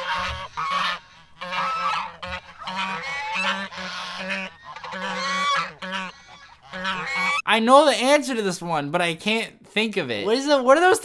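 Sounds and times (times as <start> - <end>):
geese honking: 0.0 - 7.5.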